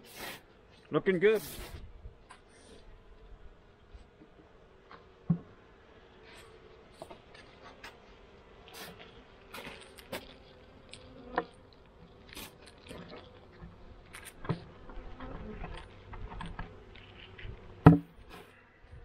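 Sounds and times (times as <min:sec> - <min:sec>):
honey bees buzzing: 0:00.0 - 0:19.0
hive cover knocking on wood: 0:17.8 - 0:18.1.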